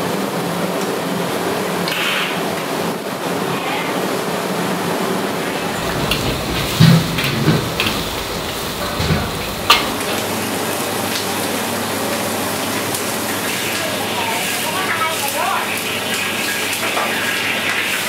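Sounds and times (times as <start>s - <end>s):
greens sizzling in a wok: 5.6s - 18.0s
metal spatula clanking on wok: 5.7s - 10.2s.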